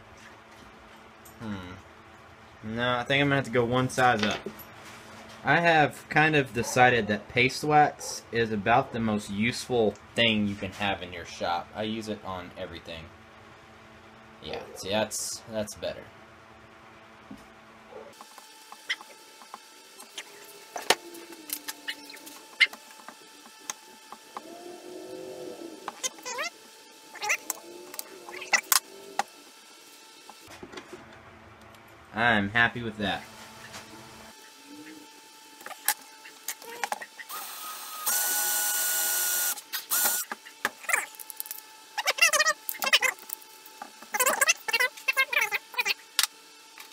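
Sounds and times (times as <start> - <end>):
cordless drill boring into wood: 37.3 - 40.3.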